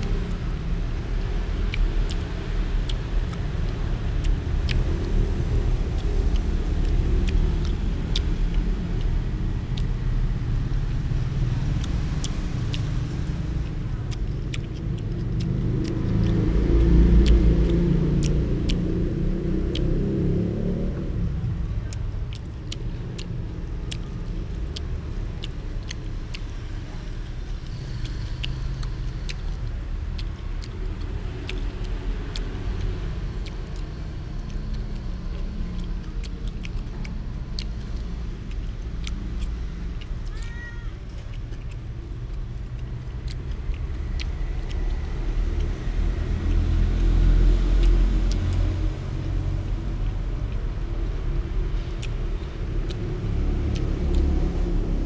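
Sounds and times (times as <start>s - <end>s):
road traffic rumble: 0.0s - 55.0s.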